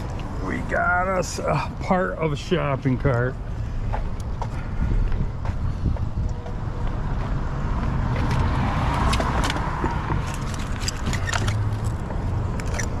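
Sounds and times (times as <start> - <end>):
steady low rumble: 0.0 - 8.6
vehicle passing: 3.4 - 13.0.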